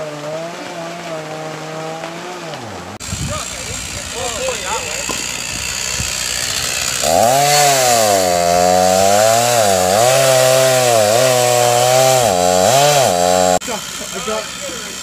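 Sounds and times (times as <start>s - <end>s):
small petrol engine running: 3.0s - 15.0s.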